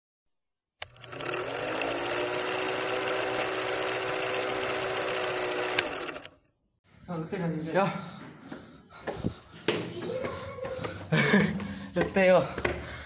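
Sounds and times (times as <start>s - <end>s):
film projector clatter and whir: 0.8s - 6.4s.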